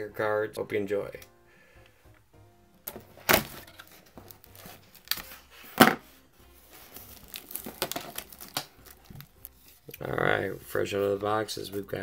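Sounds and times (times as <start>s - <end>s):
plastic rustling and crackling: 3.1s - 6.0s, 6.6s - 9.9s
shrink wrap tearing: 3.3s - 5.4s, 6.7s - 10.0s.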